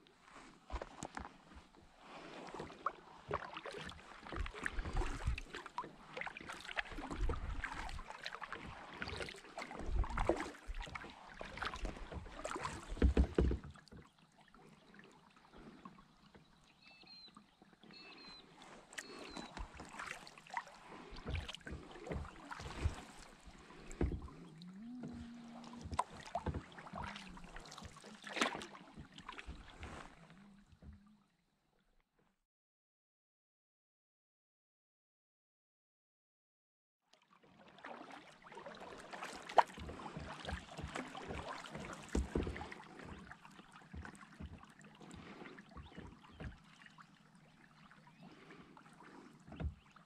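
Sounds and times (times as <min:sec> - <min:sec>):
paddle splashing in water: 0:00.2 - 0:31.2, 0:37.1 - 0:50.0.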